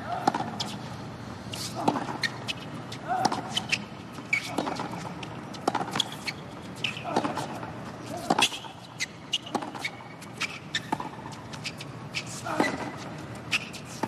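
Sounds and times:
tennis ball bouncing: 0:00.1 - 0:00.8, 0:03.2 - 0:09.9, 0:10.7 - 0:11.6
racquet striking tennis ball: 0:04.4 - 0:06.2.

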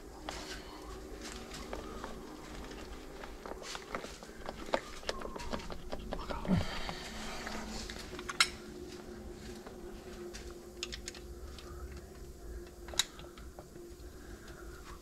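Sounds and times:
faint steady hum: 0:00.0 - 0:15.0
metallic clicks of hand tools: 0:12.9 - 0:13.4.

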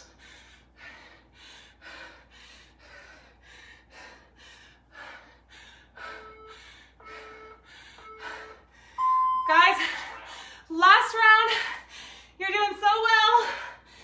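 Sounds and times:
woman breathing hard: 0:00.0 - 0:09.0, 0:09.8 - 0:10.8, 0:11.5 - 0:12.4, 0:13.3 - 0:14.0
electronic timer beep: 0:06.2 - 0:10.1.

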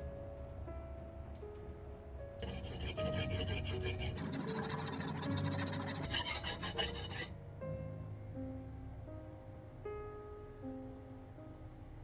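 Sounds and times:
soft piano music: 0:00.0 - 0:12.0
metal scraping on sharpening plate: 0:02.4 - 0:07.3.

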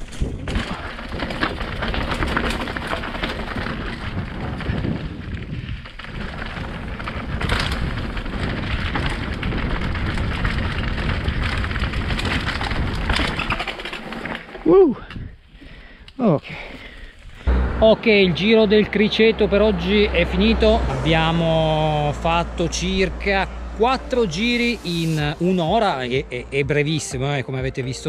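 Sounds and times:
wind rumble on microphone: 0:00.0 - 0:14.0, 0:15.0 - 0:15.7, 0:17.1 - 0:27.0
bike clattering over bumps: 0:00.0 - 0:15.9
bike tyres crunching over stones: 0:00.0 - 0:17.6.

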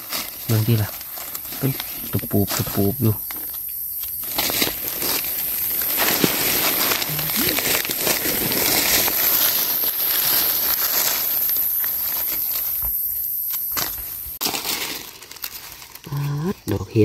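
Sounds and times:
dry leaves rustling and crackling: 0:00.0 - 0:17.0.

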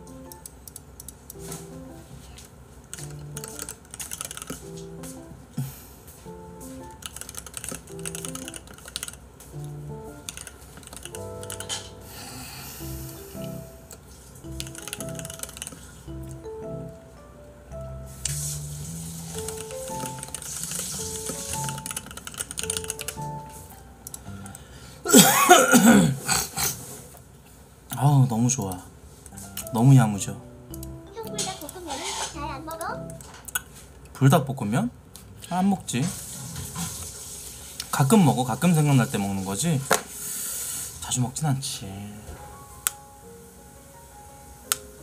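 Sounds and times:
background music of held notes: 0:00.0 - 0:00.5, 0:01.4 - 0:02.4, 0:03.0 - 0:03.8, 0:04.5 - 0:26.0, 0:29.3 - 0:33.5, 0:36.2 - 0:45.0
rapid keyboard typing: 0:02.8 - 0:04.8, 0:06.7 - 0:12.0, 0:14.4 - 0:16.5, 0:19.2 - 0:24.6
man coughing and clearing throat: 0:25.1 - 0:26.8.

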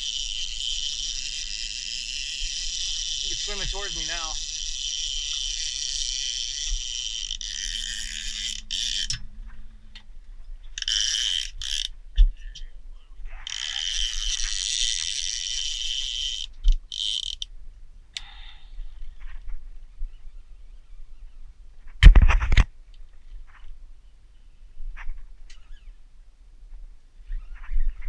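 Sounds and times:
fishing reel ratcheting: 0:00.0 - 0:09.2, 0:10.8 - 0:11.9, 0:13.4 - 0:17.5.

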